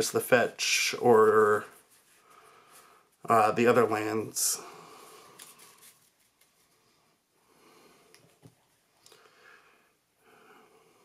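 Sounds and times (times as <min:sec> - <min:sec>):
faint breathing: 0:02.1 - 0:03.2, 0:04.6 - 0:05.7, 0:06.7 - 0:08.2, 0:09.0 - 0:11.0.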